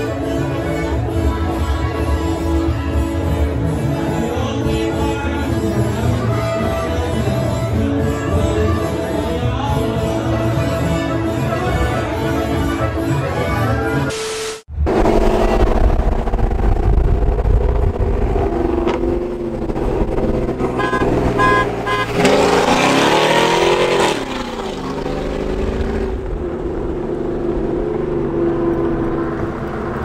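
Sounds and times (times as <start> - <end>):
truck engine running and revving: 0.0 - 30.0
short horn beeps: 14.0 - 14.7, 20.8 - 22.2.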